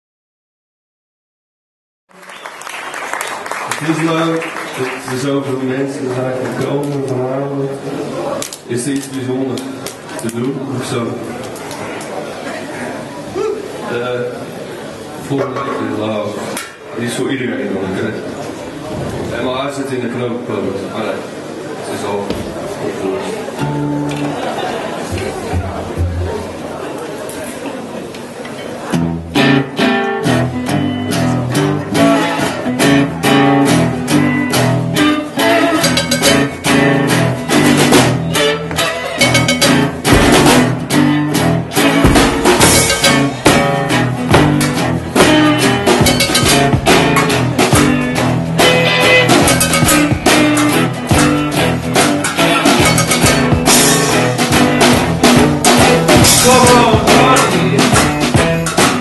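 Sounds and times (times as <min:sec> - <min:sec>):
acoustic guitar strumming: 0:23.6 - 0:26.6, 0:29.0 - 0:59.0
upright bass: 0:23.6 - 0:26.7, 0:29.0 - 0:59.0
drum kit beat: 0:25.1 - 0:26.6, 0:31.6 - 0:59.0.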